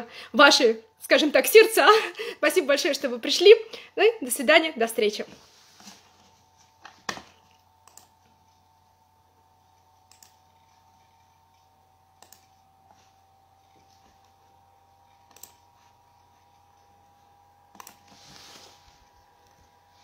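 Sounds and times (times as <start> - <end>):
sharp clicks: 7.8 - 8.1, 10.1 - 10.4, 12.2 - 12.5, 15.3 - 15.6.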